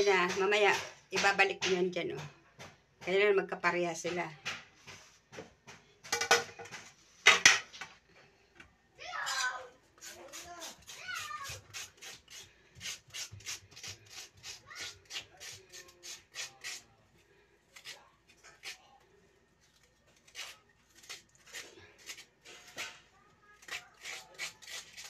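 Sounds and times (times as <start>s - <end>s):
grater rasping in a metal bowl: 23.6s - 25.0s.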